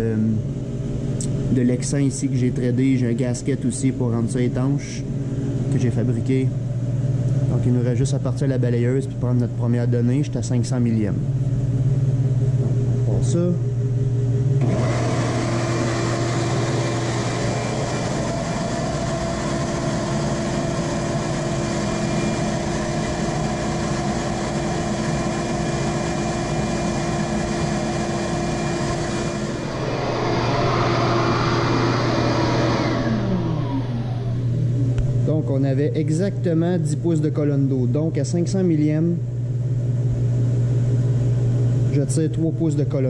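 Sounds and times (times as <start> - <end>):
shop vacuum running: 0.0 - 43.0.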